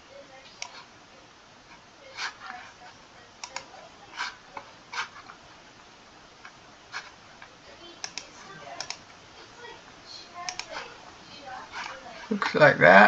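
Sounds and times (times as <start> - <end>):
computer mouse clicking: 3.4 - 5.4, 6.4 - 9.2, 10.4 - 10.9.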